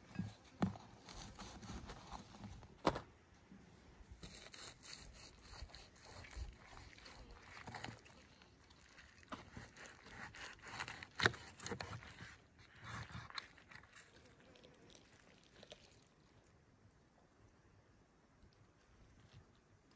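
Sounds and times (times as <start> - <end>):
knife and fork cutting meat: 4.2 - 14.2.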